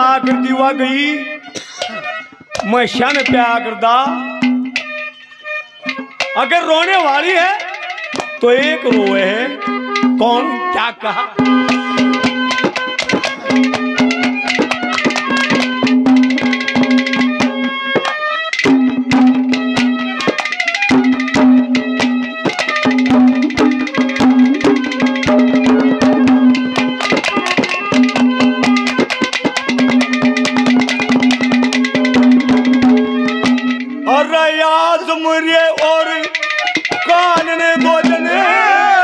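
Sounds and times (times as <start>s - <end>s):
held melodic note: 0.0s - 39.0s
rapid hand-drum strokes: 1.5s - 3.7s, 11.4s - 34.4s, 35.5s - 38.7s.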